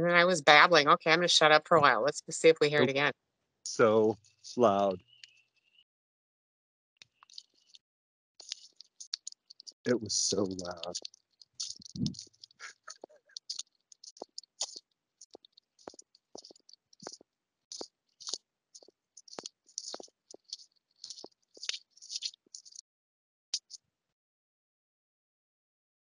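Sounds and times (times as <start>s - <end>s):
faint crackles and clicks: 7.0s - 7.8s, 8.4s - 22.8s, 23.6s - 23.8s.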